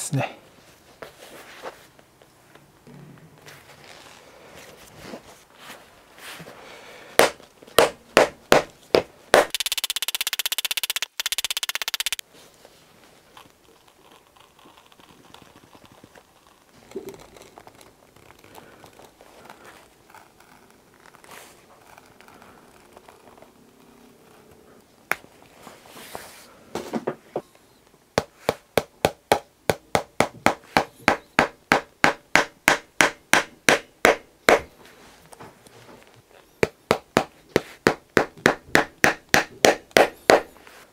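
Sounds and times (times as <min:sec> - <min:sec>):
hammer tapping on heel: 0:07.2 - 0:09.6, 0:28.2 - 0:34.7, 0:36.6 - 0:40.5.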